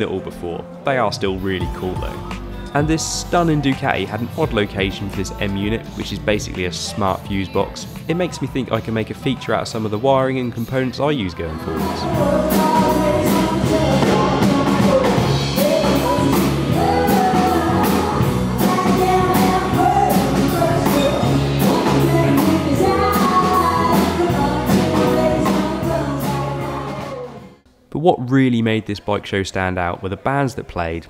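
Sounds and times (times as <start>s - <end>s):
person singing: 0.4s - 27.6s
steady drum beat: 11.7s - 27.2s.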